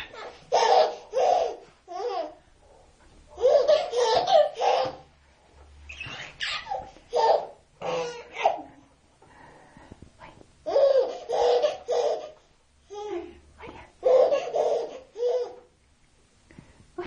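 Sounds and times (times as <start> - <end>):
baby laughing: 0.0 - 2.4, 3.4 - 5.1, 6.0 - 8.8, 10.7 - 13.1, 14.0 - 15.7.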